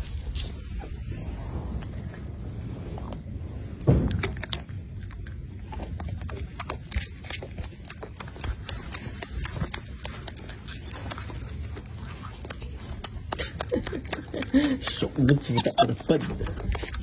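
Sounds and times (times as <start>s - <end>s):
monkey chewing crunchy stalks: 0.0s - 17.0s
loud low thump: 3.8s - 4.4s.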